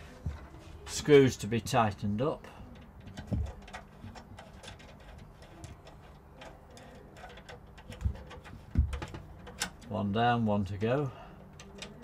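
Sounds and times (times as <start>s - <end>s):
screwdriver clicking on metal: 2.7s - 9.9s.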